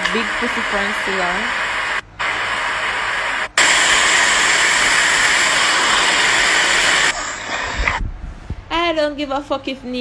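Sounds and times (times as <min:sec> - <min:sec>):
static rushing noise: 0:00.0 - 0:08.4.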